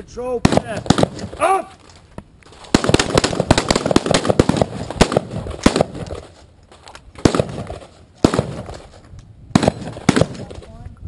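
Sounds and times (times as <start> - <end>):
rifle shots: 0.4 - 1.6, 2.7 - 6.3, 7.2 - 10.7.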